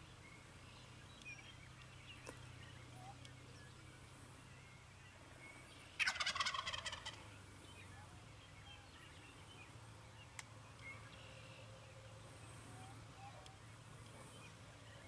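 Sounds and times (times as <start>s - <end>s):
turkey gobbling: 6.0s - 7.2s.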